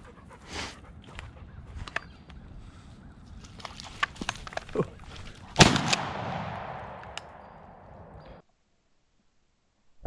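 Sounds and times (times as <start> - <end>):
dry brush snapping and rustling: 3.4 - 6.2
shotgun blast: 5.6 - 7.9.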